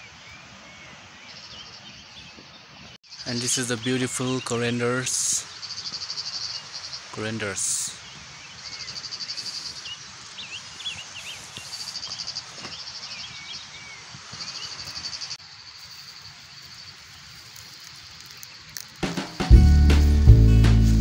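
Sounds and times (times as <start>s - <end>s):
insects trilling: 3.0s - 19.5s.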